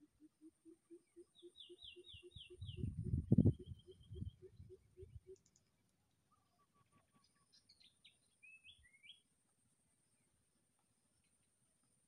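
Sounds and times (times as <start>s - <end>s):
soft low pulses: 2.4s - 5.3s.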